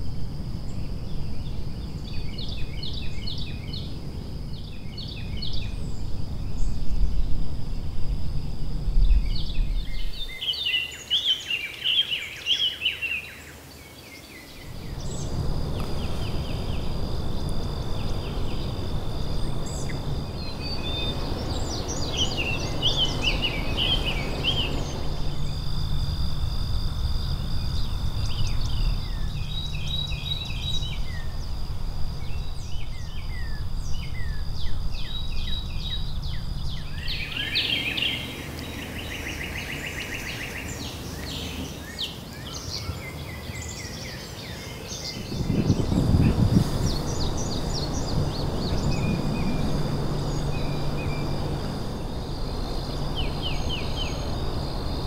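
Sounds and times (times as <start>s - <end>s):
birds chirping: 9.0s - 25.8s, 32.2s - 55.0s
high-pitched whine: 14.5s - 42.9s, 44.9s - 55.0s.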